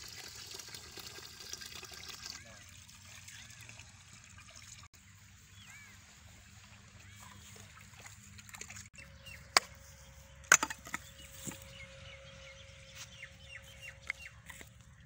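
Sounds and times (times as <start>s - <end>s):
bricks and firewood knocking: 10.5s - 11.0s.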